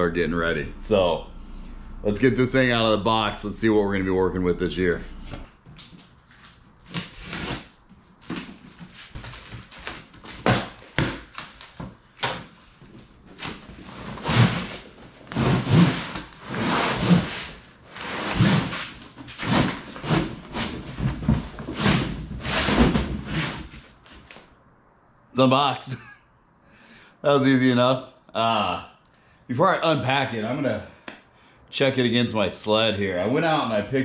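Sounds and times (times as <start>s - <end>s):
cardboard scraping: 5.2s - 24.5s
fabric rubbing: 13.8s - 24.3s.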